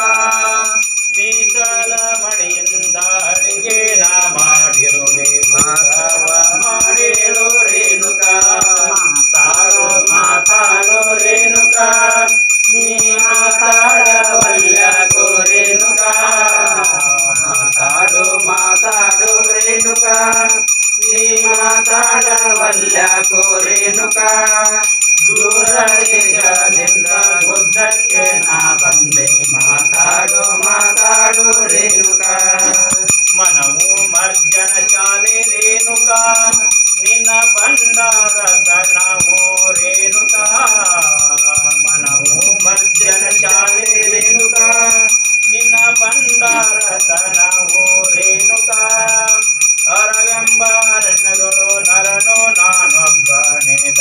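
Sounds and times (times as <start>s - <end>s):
handbell ringing rapidly: 0.0s - 54.0s.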